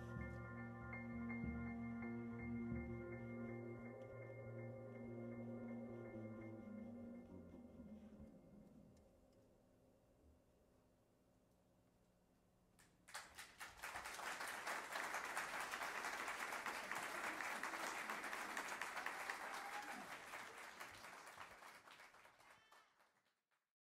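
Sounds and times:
faint music: 0.0 - 10.6
audience applauding: 13.1 - 23.3.

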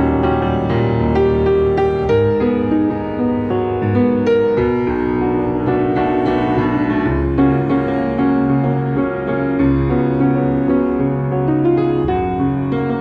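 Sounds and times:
jazz piano chords: 0.0 - 13.0
low piano bass notes: 0.0 - 13.0.

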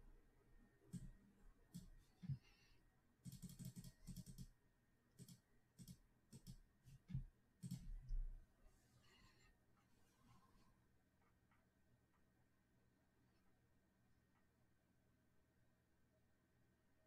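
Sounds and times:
mouse and keyboard clicking: 3.2 - 4.5, 5.2 - 7.9.

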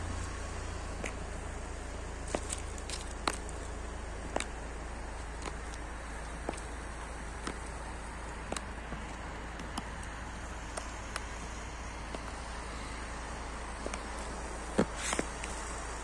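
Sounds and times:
steady outdoor hiss: 0.0 - 16.0
heels clicking on asphalt: 0.2 - 16.0.

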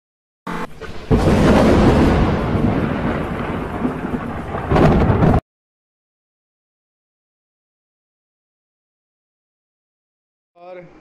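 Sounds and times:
rain: 0.5 - 5.4
thunder rumbling: 0.5 - 5.4.

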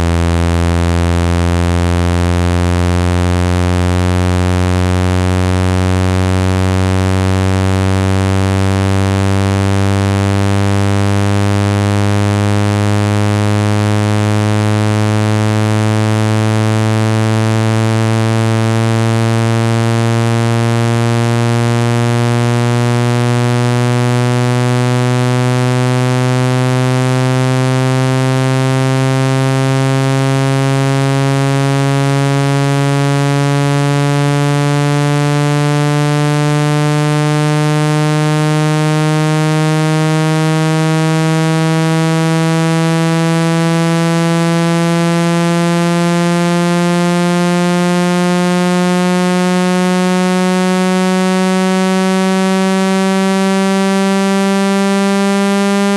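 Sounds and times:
buzzy low rising tone: 0.0 - 55.9.

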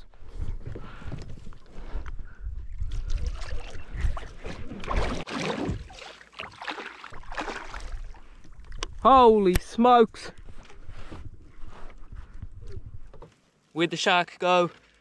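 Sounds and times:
water splashing around kayak: 2.8 - 9.1.

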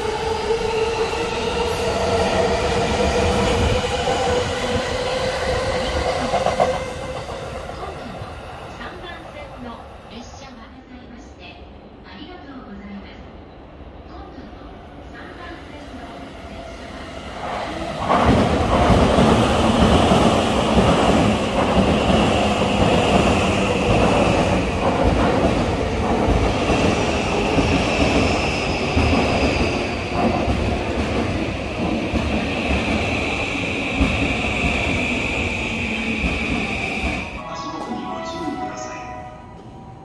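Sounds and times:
train wheels running on rails: 15.2 - 37.4.

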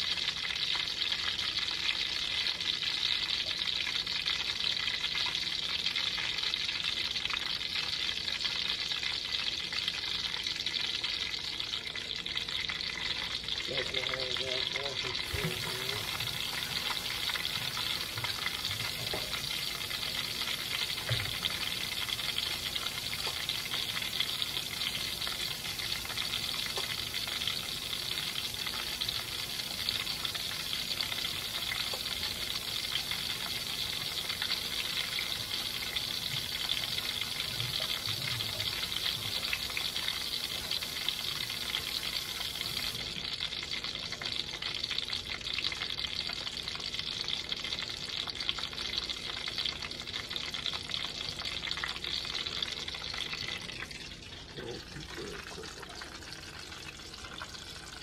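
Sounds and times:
food sizzling in a pan: 0.0 - 58.0
kitchen faucet running into sink: 13.2 - 43.1.

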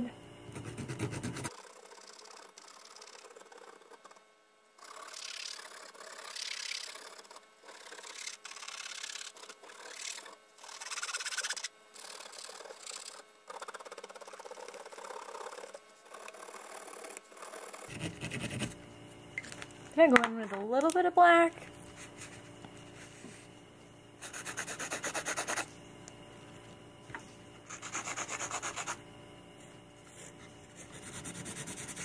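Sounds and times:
marker scratching on canvas: 24.2 - 25.7, 27.7 - 29.0, 30.2 - 32.0.

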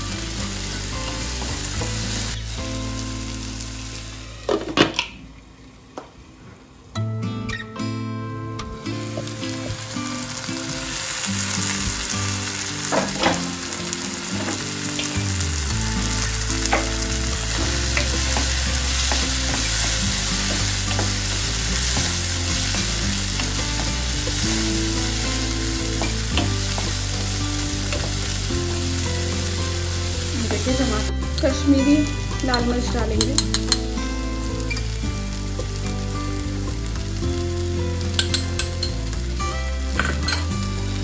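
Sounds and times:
vegetables sizzling in oil: 0.0 - 5.9, 8.8 - 41.0
wooden spatula knocking pan: 16.6 - 24.4.

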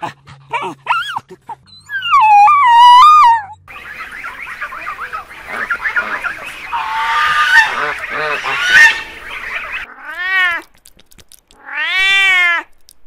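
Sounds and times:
geese and goslings calling: 3.7 - 9.9.

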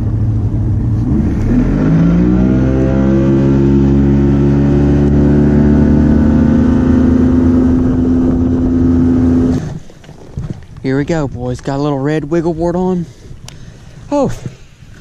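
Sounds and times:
outboard motor throttling up: 0.0 - 10.6.

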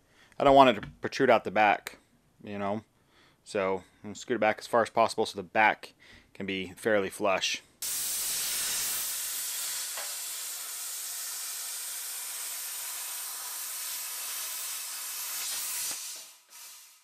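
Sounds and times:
plasma cutter hissing: 7.8 - 17.0.

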